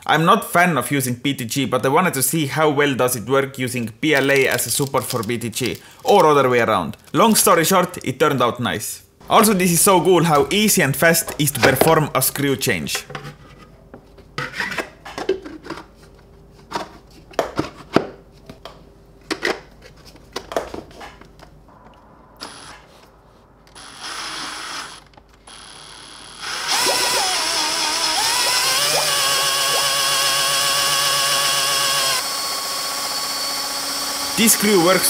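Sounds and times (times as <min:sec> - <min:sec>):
plastic parts clicking and knocking: 0:04.1 - 0:07.2
cordless drill motor whine: 0:22.4 - 0:22.8, 0:23.7 - 0:35.0.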